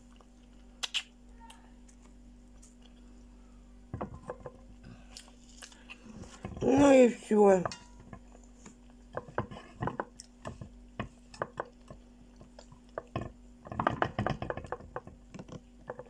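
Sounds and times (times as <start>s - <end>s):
chewing and mouth smacks: 0.0s - 1.2s.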